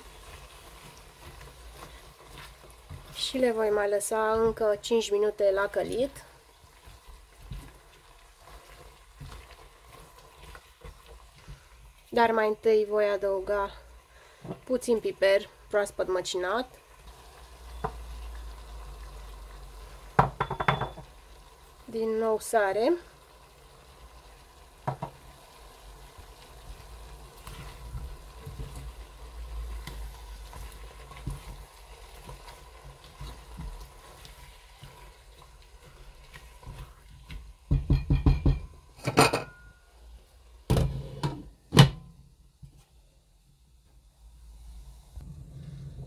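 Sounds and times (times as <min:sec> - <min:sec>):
spatula stirring and scraping: 0:00.0 - 0:12.3, 0:26.2 - 0:37.7
food frying in a pot: 0:00.0 - 0:46.0
sharp knocks against a pot: 0:20.2 - 0:21.0, 0:24.8 - 0:25.2, 0:37.7 - 0:39.6.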